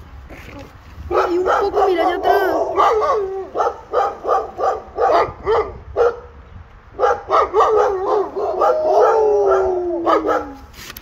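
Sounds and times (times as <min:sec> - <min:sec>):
dog barking: 0:01.1 - 0:06.3, 0:07.0 - 0:10.6.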